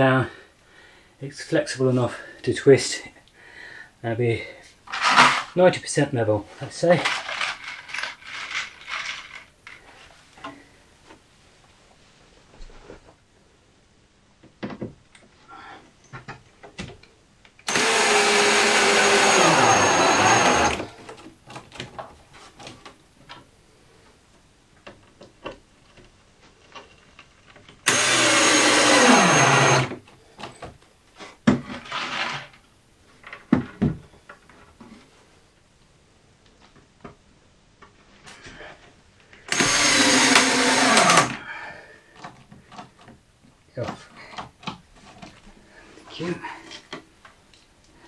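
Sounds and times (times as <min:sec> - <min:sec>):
power drill driving screws: 0:17.7 - 0:20.9, 0:27.8 - 0:30.0, 0:39.5 - 0:41.4.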